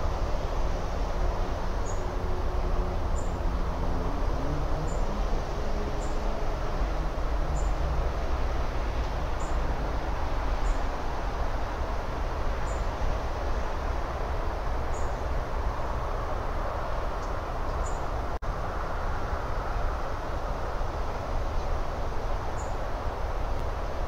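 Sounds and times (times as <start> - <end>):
low outdoor rumble with hiss: 0.0 - 24.0.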